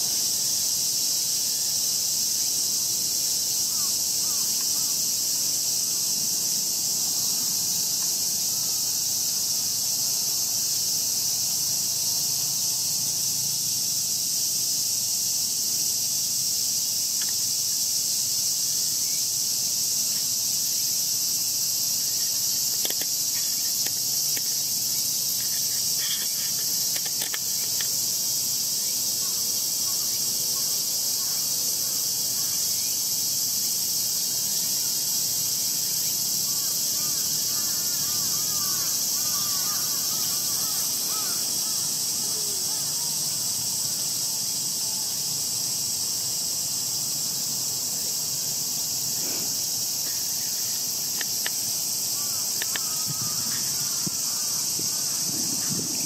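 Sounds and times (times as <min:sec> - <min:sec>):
insects buzzing: 0:00.0 - 0:56.0
faint ticks: 0:52.5 - 0:53.0.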